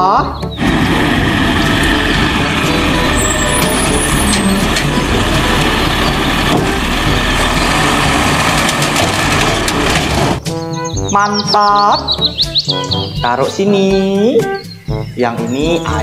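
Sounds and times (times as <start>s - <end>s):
diesel engine running: 0.5s - 10.4s
hydraulic arm lifting bin: 0.6s - 10.4s.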